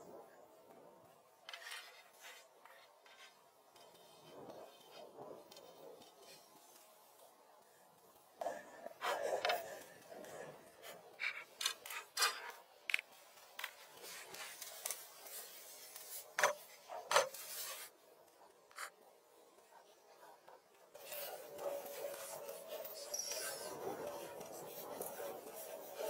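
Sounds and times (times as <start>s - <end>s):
scraping and rubbing: 1.4s - 6.9s, 8.4s - 18.0s, 20.9s - 26.0s.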